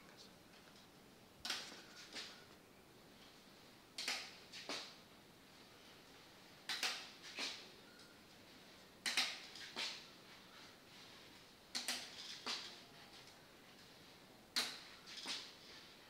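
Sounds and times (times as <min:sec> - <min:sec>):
crutches clicking on tiled floor: 0:09.0 - 0:10.0, 0:11.7 - 0:12.8, 0:14.6 - 0:15.6.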